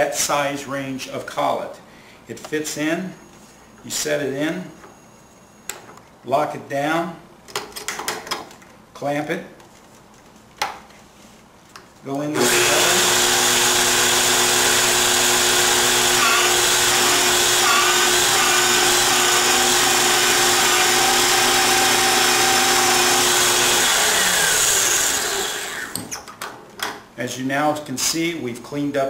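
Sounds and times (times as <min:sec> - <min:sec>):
pipe-beveling machine motor whine: 0:12.4 - 0:26.0.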